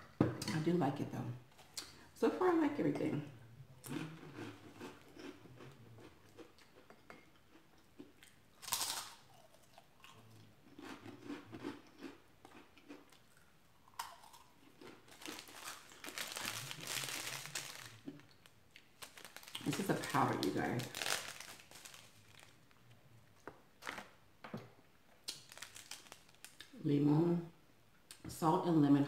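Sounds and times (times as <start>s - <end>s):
chewing crunchy snack: 3.8s - 22.8s, 25.2s - 26.8s
plastic sachets crinkling: 15.0s - 22.8s, 25.2s - 26.8s.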